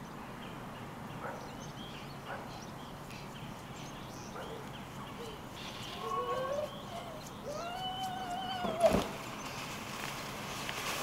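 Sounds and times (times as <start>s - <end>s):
small birds chirping: 0.0s - 10.1s
soft crunching: 8.0s - 11.0s.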